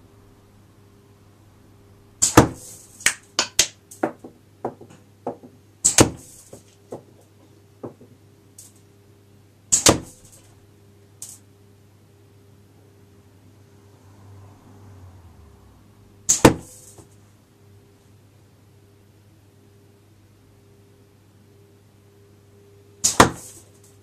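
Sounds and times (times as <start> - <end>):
slingshot shots double crack: 9.7 - 10.4, 16.3 - 16.8, 23.0 - 23.6.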